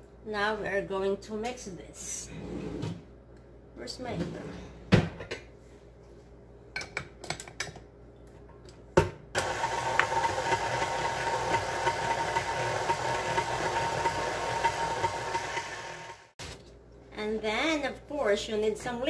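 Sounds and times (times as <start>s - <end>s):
stand mixer whining: 9.4s - 16.3s.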